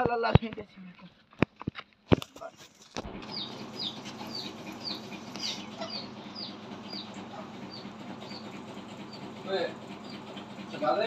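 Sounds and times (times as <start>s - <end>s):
steady low hum: 3.0s - 11.0s
bird chirping: 3.2s - 10.7s.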